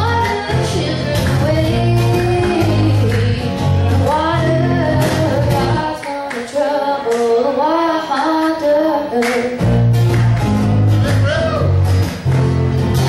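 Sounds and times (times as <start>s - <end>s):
low bass notes: 0.0s - 5.8s, 9.6s - 13.0s
girl singing: 0.0s - 9.6s
strummed guitars: 0.0s - 13.0s.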